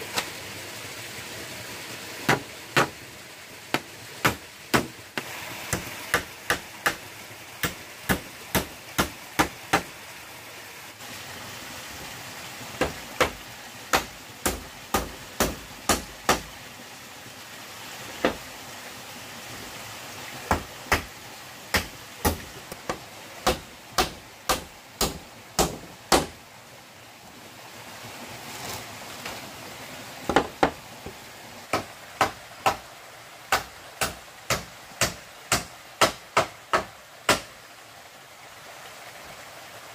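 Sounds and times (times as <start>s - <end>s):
small stream rushing: 0.0s - 39.9s
tool striking bamboo: 2.3s - 3.0s, 3.7s - 7.0s, 7.6s - 9.9s, 12.8s - 16.5s, 20.5s - 21.1s, 21.7s - 26.4s, 31.7s - 32.8s, 33.5s - 37.5s.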